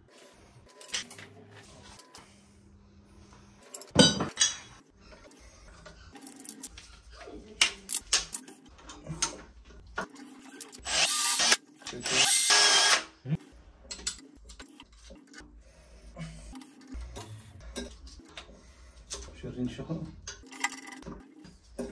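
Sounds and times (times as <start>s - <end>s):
tools clicking and knocking on pipe: 13.8s - 15.5s, 20.0s - 21.9s.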